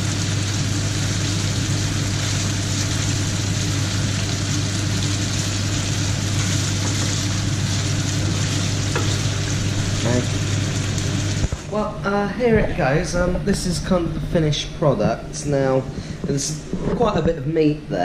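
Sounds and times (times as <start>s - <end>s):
meat sizzling in oil: 0.0s - 11.7s.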